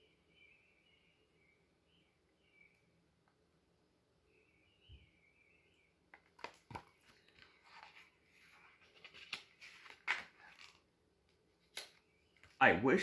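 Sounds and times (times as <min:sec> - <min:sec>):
book pages turning: 0:06.1 - 0:12.6.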